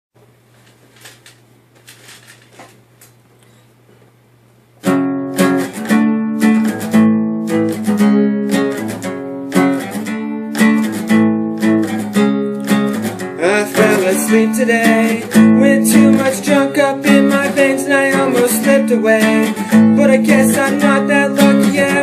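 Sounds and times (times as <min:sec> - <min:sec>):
acoustic guitar strumming chords: 0:04.8 - 0:22.0.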